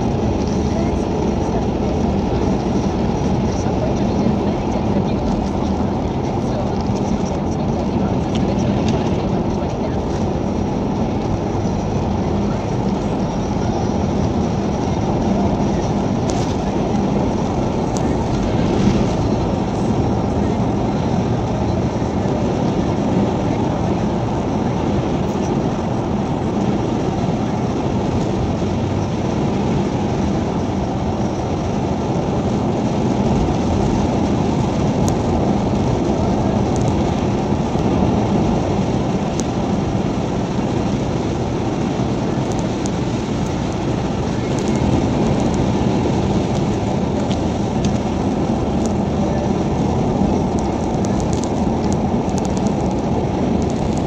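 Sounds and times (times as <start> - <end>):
car road noise at highway speed: 0.0 - 54.0.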